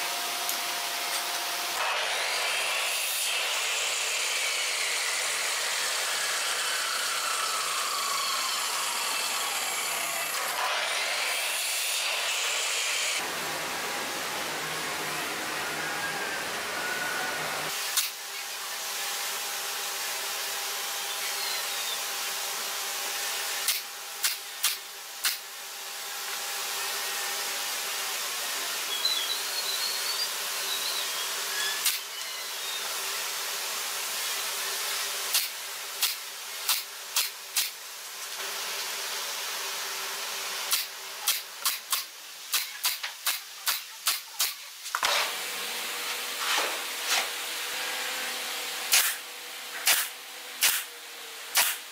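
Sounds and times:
nail gun shots: 0:35.3 - 0:37.8, 0:40.7 - 0:45.2, 0:48.9 - 0:49.2, 0:49.8 - 0:50.9, 0:51.5 - 0:51.9.

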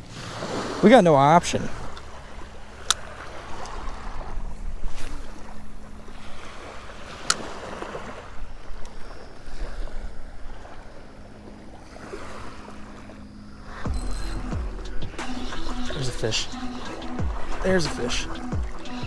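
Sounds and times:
small waves lapping: 0:00.0 - 0:19.0.

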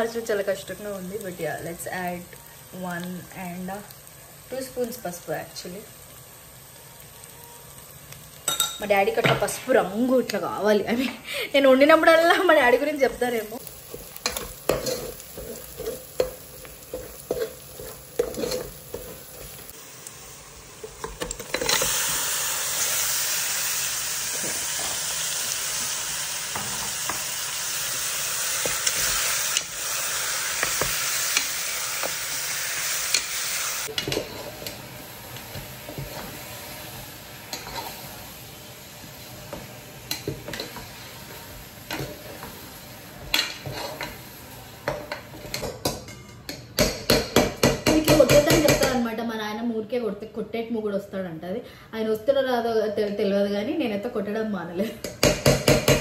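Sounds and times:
loud sizzle in hot oil: 0:00.0 - 0:46.1
metal spatula scraping and tapping: 0:13.9 - 0:19.6, 0:34.0 - 0:34.8, 0:37.5 - 0:38.0, 0:43.2 - 0:44.2.

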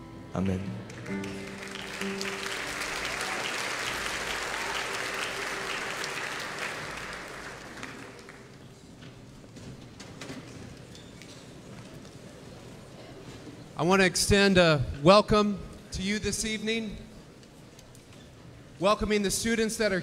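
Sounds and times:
sustained band chord: 0:00.0 - 0:06.4
congregation applauding: 0:00.4 - 0:09.0.

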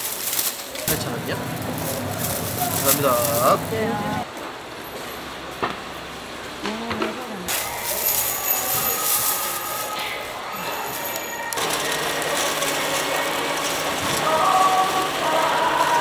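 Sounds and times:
plastic bag crinkling: 0:00.0 - 0:04.2, 0:07.6 - 0:13.8
busy covered market noise: 0:00.0 - 0:16.0.

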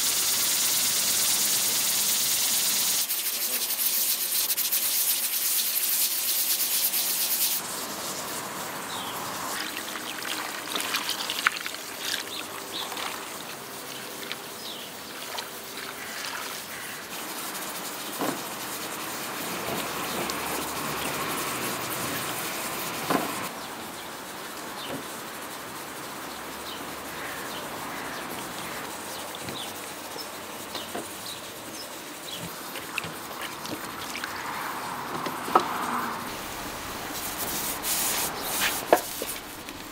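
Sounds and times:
pressure cooker valve hissing steam: 0:00.0 - 0:09.6
vegetables rustling in metal bowls: 0:09.6 - 0:18.6, 0:35.7 - 0:39.9.

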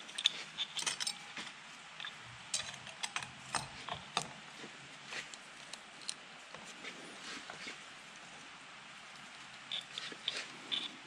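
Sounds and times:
small metallic clicks and clinks: 0:00.0 - 0:04.4, 0:09.6 - 0:11.0.

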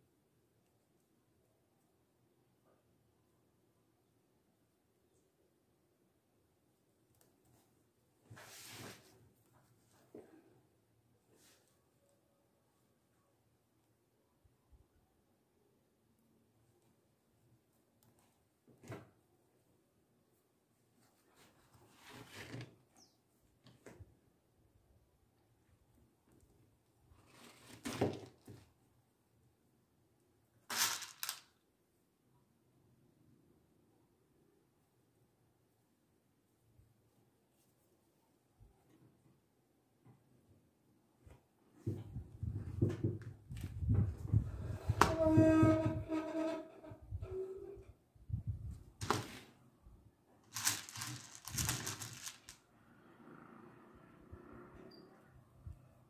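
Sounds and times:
plastic sheet crinkling: 0:30.7 - 0:31.5, 0:50.5 - 0:52.6
plastic beads rustling and clicking: 0:30.7 - 0:31.6, 0:50.5 - 0:52.6.

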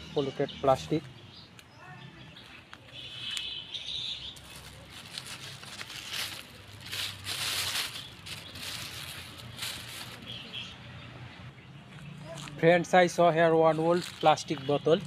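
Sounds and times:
plastic bag rustling: 0:04.4 - 0:10.3.

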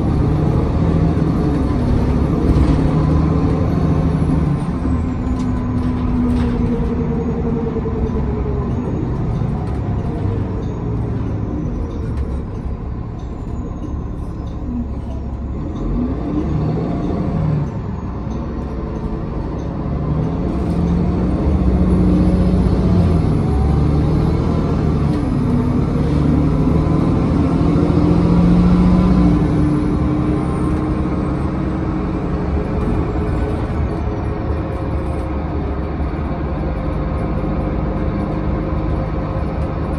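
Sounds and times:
bus engine hum: 0:00.0 - 0:39.9
road noise: 0:00.0 - 0:39.9.

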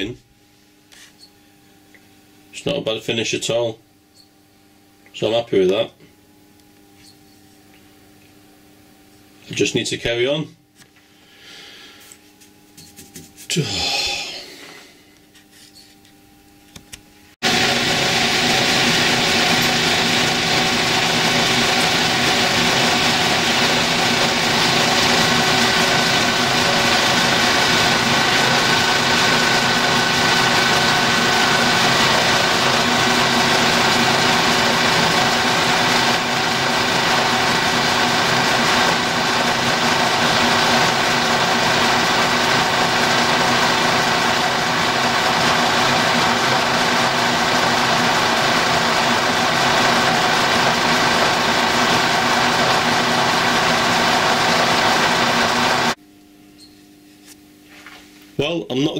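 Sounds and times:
metal lathe running: 0:17.4 - 0:56.0
tool turning steel bar: 0:17.6 - 0:46.6.

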